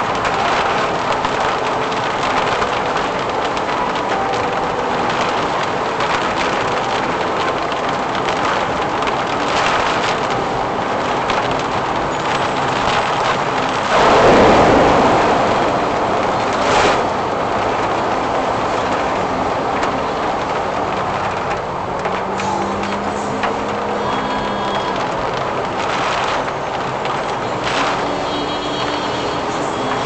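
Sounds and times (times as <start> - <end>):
heavy rain: 0.0 - 30.0
tyres on standing water: 0.0 - 30.0
water splashing over car: 0.0 - 30.0.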